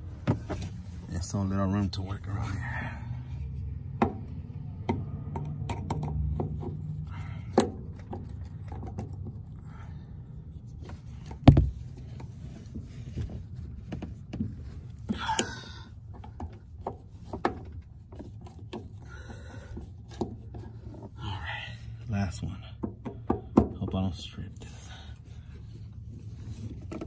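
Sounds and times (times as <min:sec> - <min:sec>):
loud thump: 0:11.4 - 0:11.8.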